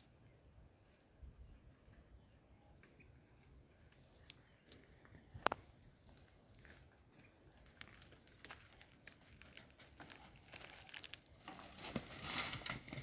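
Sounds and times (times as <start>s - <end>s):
dry leaves and twigs crackling: 3.8s - 13.0s.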